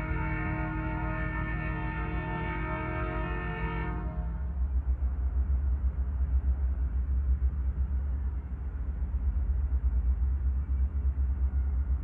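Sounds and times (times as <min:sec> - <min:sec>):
locomotive air horn: 0:00.0 - 0:04.3.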